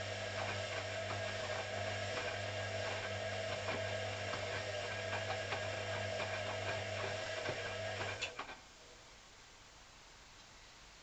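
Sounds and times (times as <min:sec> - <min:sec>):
washing machine motor hum: 0:00.0 - 0:08.6.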